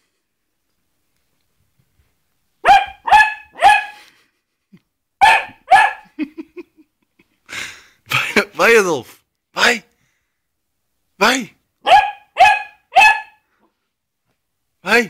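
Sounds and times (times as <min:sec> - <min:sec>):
dog barking: 0:02.6 - 0:04.0, 0:05.2 - 0:06.2, 0:11.8 - 0:13.4.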